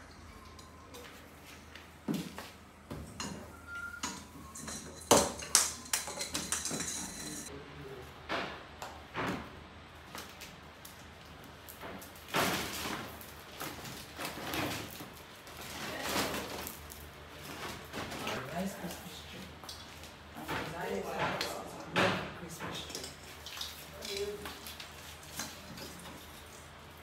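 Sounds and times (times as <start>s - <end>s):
string lights clicking and rustling: 4.0s - 7.5s.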